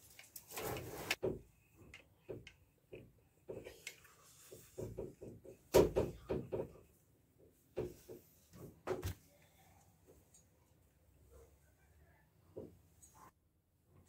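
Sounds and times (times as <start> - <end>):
scraping rustle: 0.0 - 1.2.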